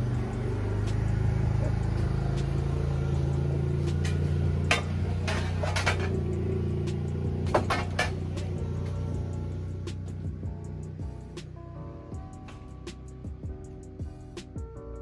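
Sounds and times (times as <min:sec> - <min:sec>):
tractor diesel engine idling: 0:00.0 - 0:11.6.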